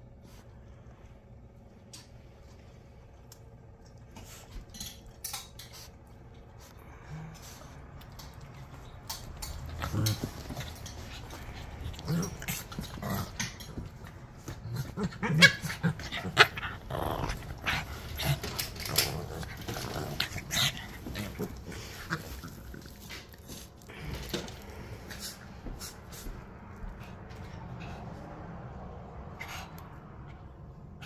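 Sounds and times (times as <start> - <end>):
small dogs growling: 6.4 - 26.2.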